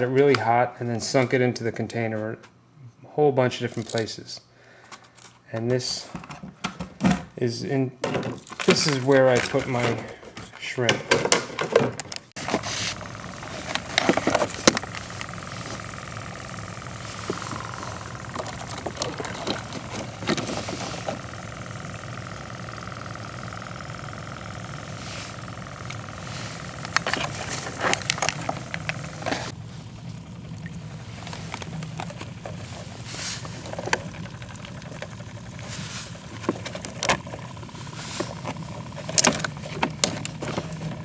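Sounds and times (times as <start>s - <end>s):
small motor humming: 12.4s - 41.0s.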